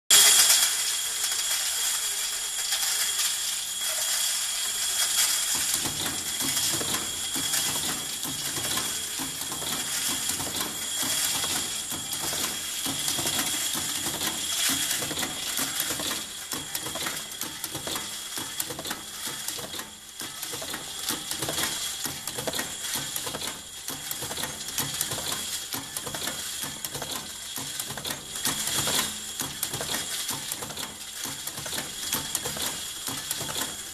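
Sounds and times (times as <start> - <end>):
steady high tone: 0.1 - 17.4
machine metallic clicking and clatter: 0.1 - 33.9.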